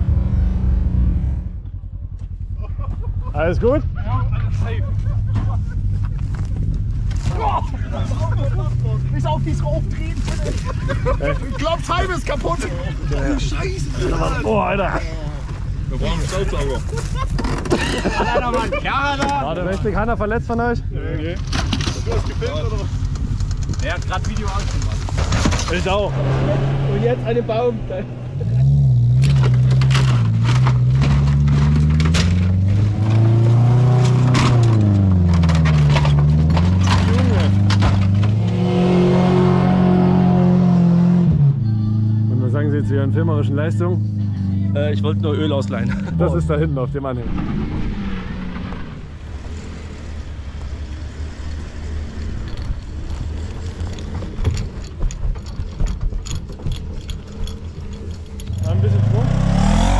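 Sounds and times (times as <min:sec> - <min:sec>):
truck engine revving: 0:00.0 - 0:12.6, 0:24.4 - 0:54.0, 0:57.4 - 0:59.9
vehicle engine idling: 0:01.2 - 0:18.0
metallic clinks and rattles: 0:52.1 - 0:58.9.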